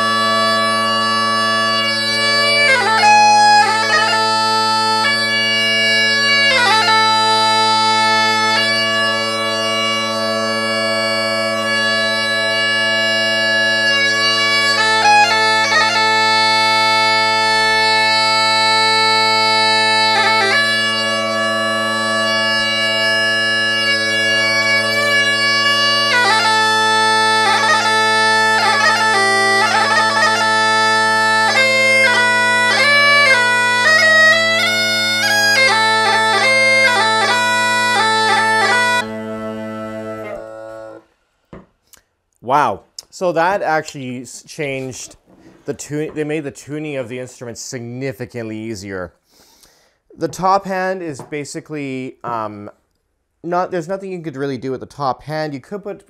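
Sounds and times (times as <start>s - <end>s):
bagpipes playing: 0.0s - 41.1s
bagpipe chanter melody: 0.0s - 41.7s
bagpipe drones: 0.0s - 41.7s.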